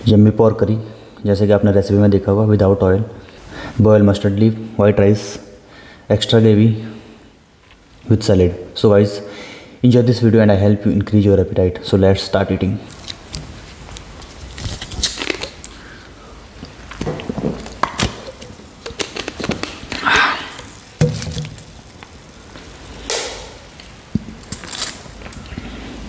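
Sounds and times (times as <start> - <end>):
fizz hissing: 18.1 - 25.1
bottle cap seal cracking: 21.0 - 21.8.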